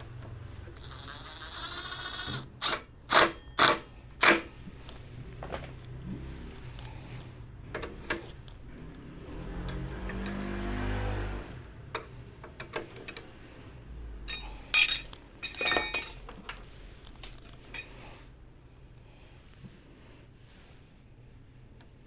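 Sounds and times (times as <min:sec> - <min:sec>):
metal tools clinking: 0:14.2 - 0:16.6, 0:17.2 - 0:18.0.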